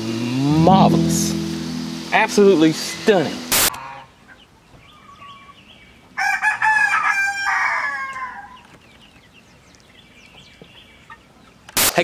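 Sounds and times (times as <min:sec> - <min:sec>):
rooster crowing: 0:06.2 - 0:08.4.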